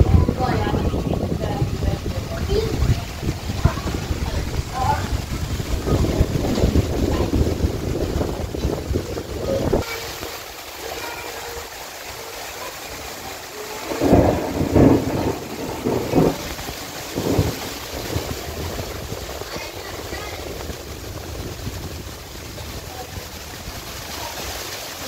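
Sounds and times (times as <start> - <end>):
low rumbling: 0.0 - 9.8, 13.8 - 24.0
wind buffeting microphone: 0.0 - 10.4, 13.8 - 24.6
heavy rain hissing: 0.0 - 25.0.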